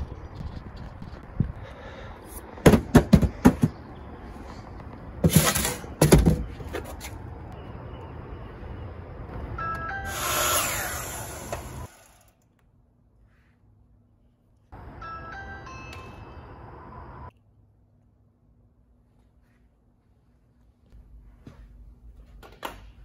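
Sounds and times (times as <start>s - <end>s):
cardboard box knocking on concrete: 2.6s - 3.8s.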